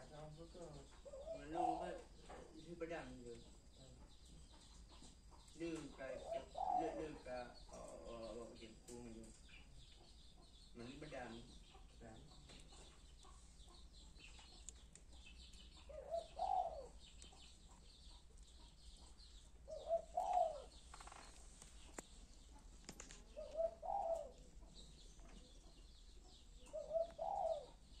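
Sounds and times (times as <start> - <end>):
dove cooing: 0.0 - 5.0, 5.6 - 9.4, 15.7 - 21.2, 21.8 - 28.0
small birds chirping: 0.0 - 28.0.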